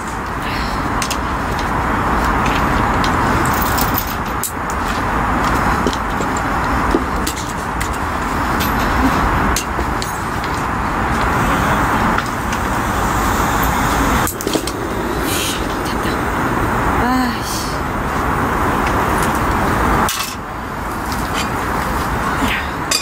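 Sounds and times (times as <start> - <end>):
road traffic drone: 0.0 - 23.0.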